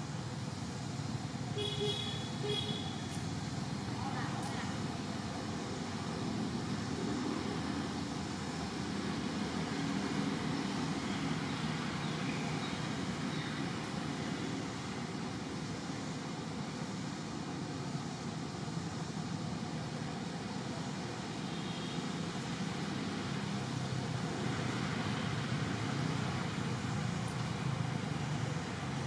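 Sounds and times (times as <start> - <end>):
outdoor rumble and hiss: 0.0 - 29.0.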